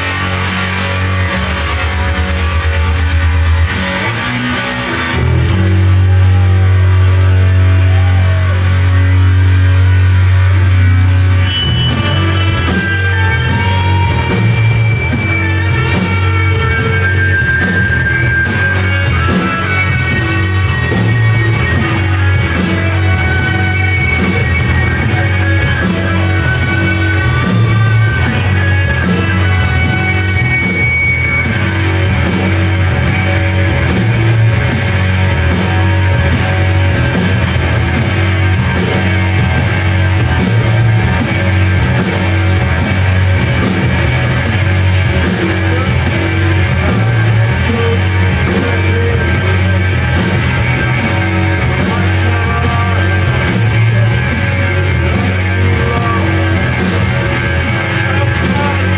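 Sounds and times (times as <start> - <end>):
live rock band playing: 0.0 - 58.9.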